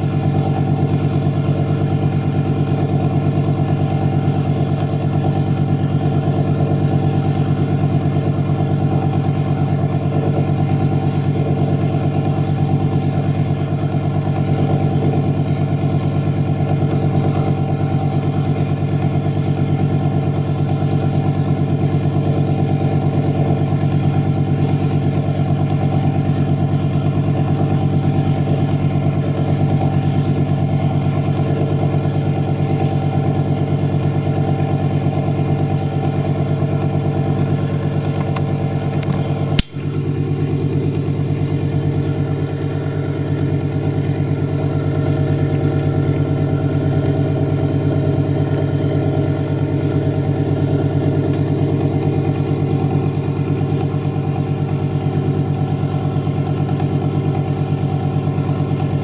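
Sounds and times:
spinning rotor hum with flutter: 0.0s - 59.0s.

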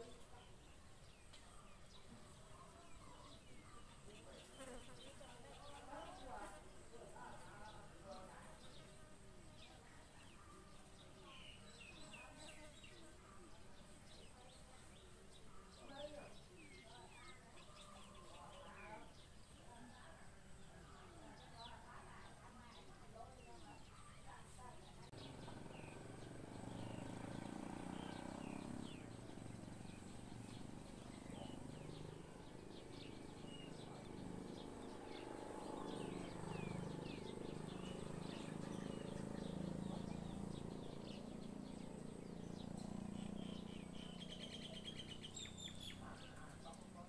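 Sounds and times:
nestlings begging chirps: 23.4s - 47.0s.

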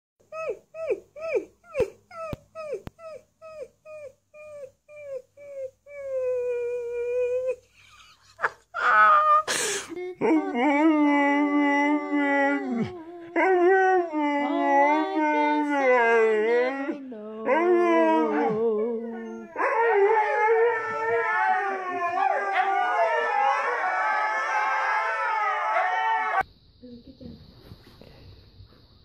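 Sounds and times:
dog howling: 10.2s - 26.4s.

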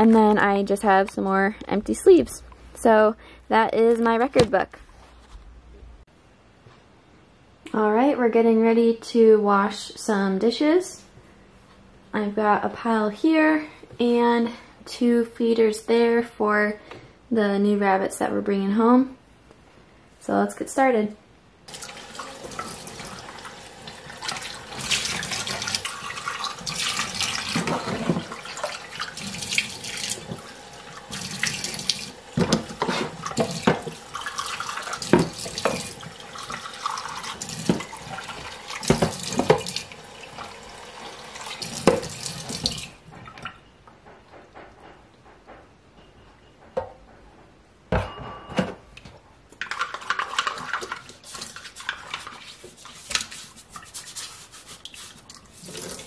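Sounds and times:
brush scrubbing plastic: 49.7s - 56.0s.

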